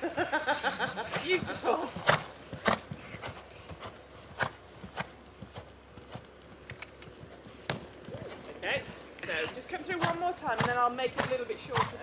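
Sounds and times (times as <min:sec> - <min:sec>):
pony hooves knocking poles: 0:01.0 - 0:12.0.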